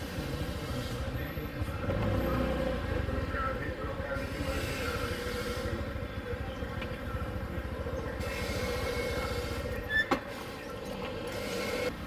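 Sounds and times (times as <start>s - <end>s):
small motorbike engine running: 1.8s - 9.9s.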